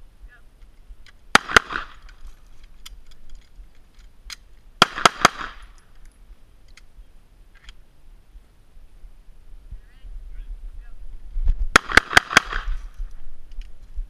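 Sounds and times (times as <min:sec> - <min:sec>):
pistol shots with echo: 0:01.3 - 0:02.0, 0:04.8 - 0:05.8, 0:11.8 - 0:12.8.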